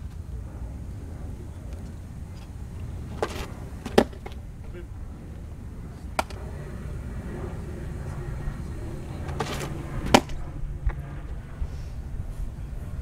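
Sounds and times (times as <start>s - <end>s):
steady low rumble: 0.0s - 13.0s
baseball smacking into glove: 3.1s - 4.4s, 6.2s - 6.4s, 9.3s - 10.4s.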